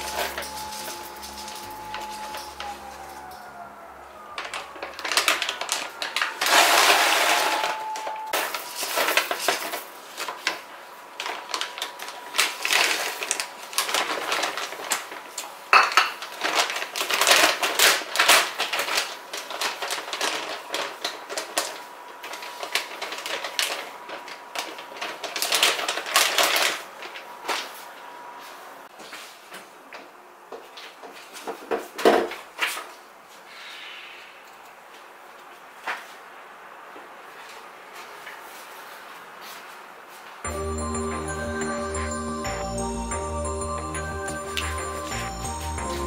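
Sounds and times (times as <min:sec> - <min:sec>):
food bag crinkling: 0:00.0 - 0:03.3, 0:04.3 - 0:07.8, 0:08.4 - 0:27.7
faint steady high tone: 0:00.0 - 0:08.8, 0:40.4 - 0:46.0.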